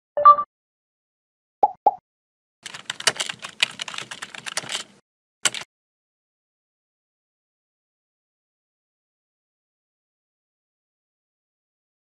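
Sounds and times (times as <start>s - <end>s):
computer keyboard typing: 2.6s - 5.7s.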